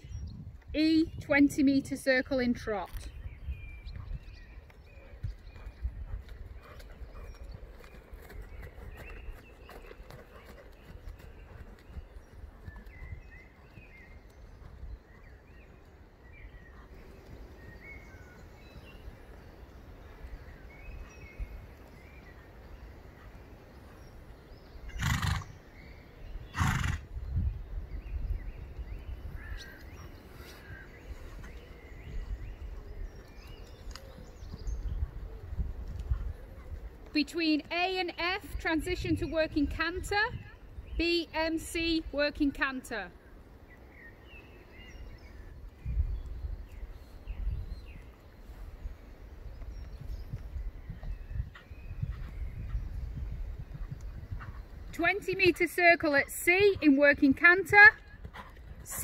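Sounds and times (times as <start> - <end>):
horse hoofbeats on soft ground: 0.1 - 27.0, 28.0 - 42.7, 44.0 - 59.0
horse snorting breaths: 24.9 - 25.6, 26.5 - 27.1, 58.3 - 59.0.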